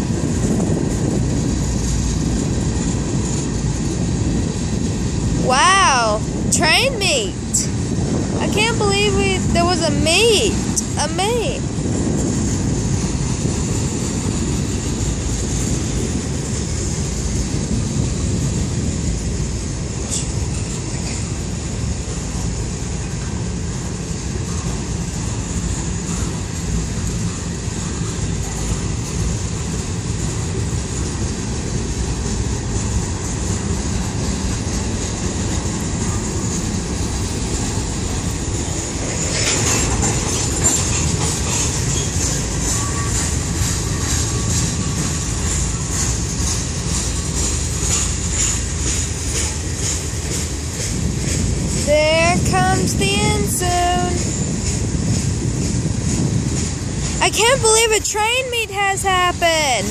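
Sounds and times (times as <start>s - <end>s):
train wheels rumbling on rails: 0.0s - 59.9s
freight cars rattling: 25.9s - 59.9s.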